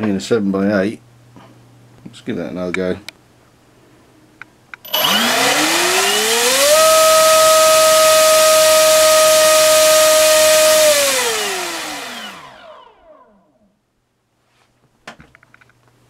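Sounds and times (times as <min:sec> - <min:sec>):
electric motor propeller whine: 0:04.8 - 0:13.7.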